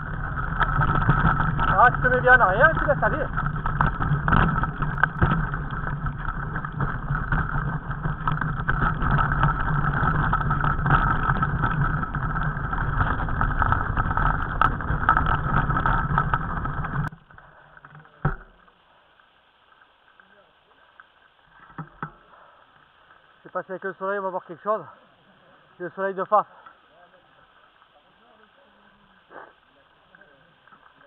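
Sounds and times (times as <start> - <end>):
bike rattling over rocky trail: 0.0 - 29.4, 30.0 - 31.0.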